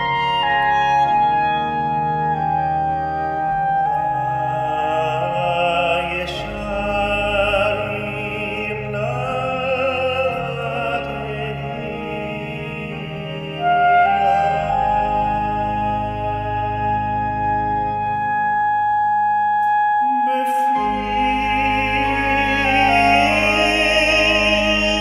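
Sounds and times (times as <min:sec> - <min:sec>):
clarinet melody: 0:00.0 - 0:25.0
sustained organ chords: 0:00.0 - 0:25.0
tenor singing with vibrato: 0:19.9 - 0:25.0.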